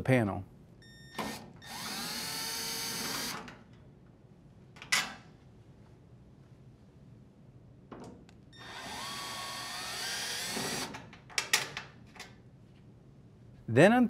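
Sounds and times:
drill driver whining: 1.2s - 3.5s, 8.6s - 11.0s.

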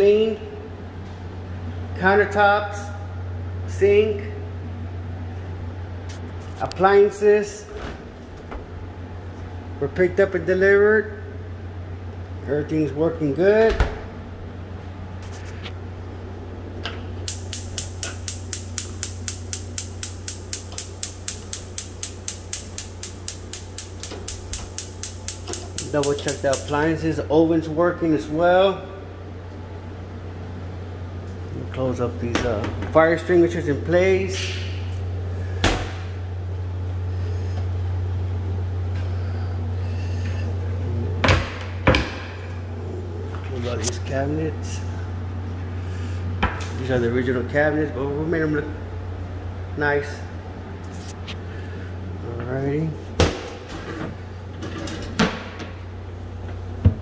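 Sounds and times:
steady low hum: 0.0s - 57.0s
gas igniter clicking rapidly: 17.2s - 26.8s.

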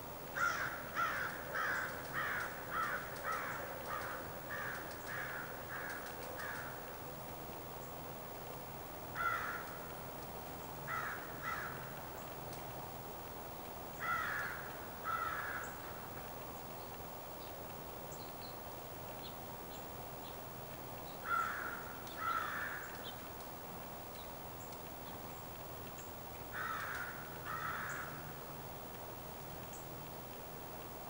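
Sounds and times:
steady background hiss: 0.0s - 31.0s
crow cawing: 0.4s - 6.9s, 9.2s - 9.8s, 10.9s - 11.9s, 14.0s - 16.0s, 21.2s - 23.1s, 26.5s - 28.4s
small birds chirping: 0.4s - 6.9s, 9.2s - 12.8s, 13.9s - 28.4s, 29.5s - 30.1s.

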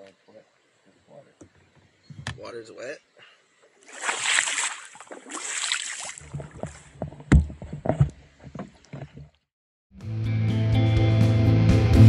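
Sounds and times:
paddle strokes swishing through water: 3.8s - 9.4s
hollow knocks and bumps: 6.2s - 9.4s.

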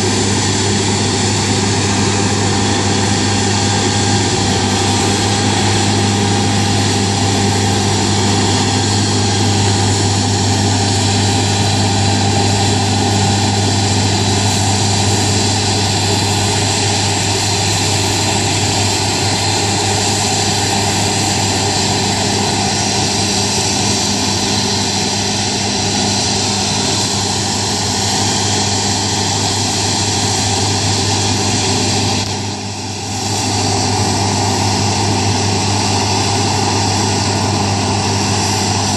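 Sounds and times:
combine harvester running: 0.0s - 38.9s.

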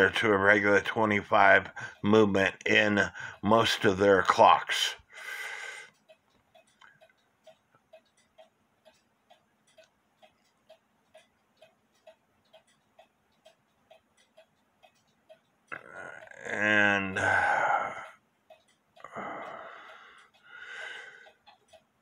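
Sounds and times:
clock ticking: 0.0s - 22.0s.

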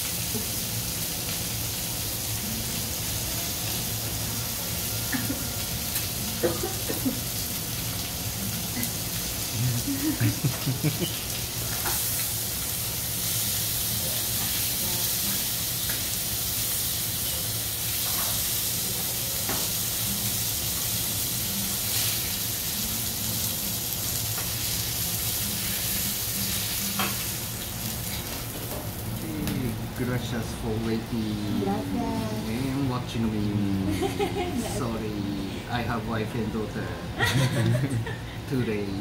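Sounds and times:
beef sizzling on a griddle: 0.0s - 36.0s.

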